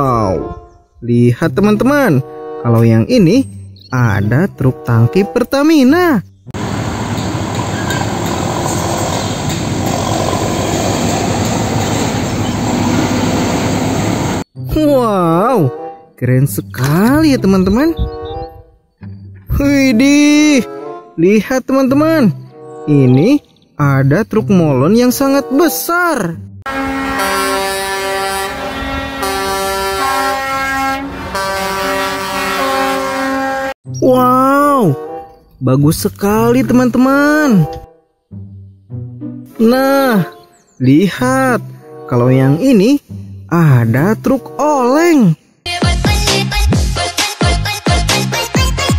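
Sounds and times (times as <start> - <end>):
truck air horns blaring: 2.0 - 2.8, 26.7 - 33.8, 41.4 - 42.6
road noise: 6.0 - 14.8, 26.6 - 44.9
truck diesel engine passing: 6.6 - 14.5, 26.7 - 33.7.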